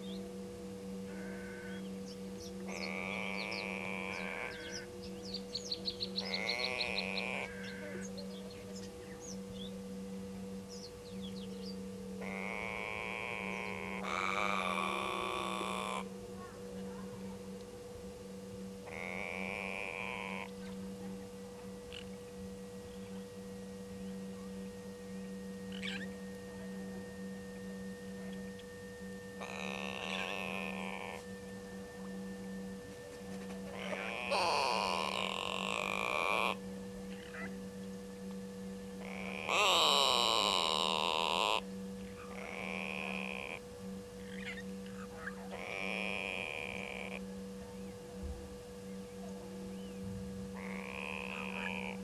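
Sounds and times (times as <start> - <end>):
steady low hum: 0.0 - 52.0
thin high whine: 0.0 - 52.0
bird giving nasal bleating calls: 1.1 - 1.8, 2.8 - 4.8, 6.2 - 8.0, 12.2 - 16.0, 18.9 - 20.5, 33.8 - 36.6
small birds chirping: 1.1 - 10.0, 10.7 - 17.0, 44.2 - 48.0.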